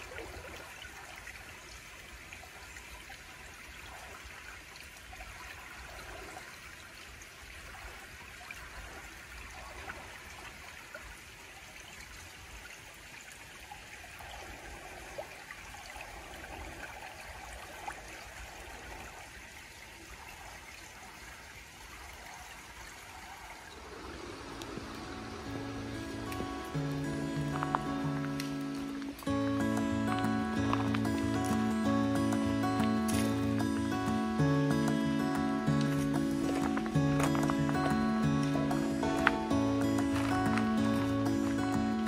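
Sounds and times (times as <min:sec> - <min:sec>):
stream trickling over rocks: 0:00.0 - 0:42.0
music: 0:24.4 - 0:42.0.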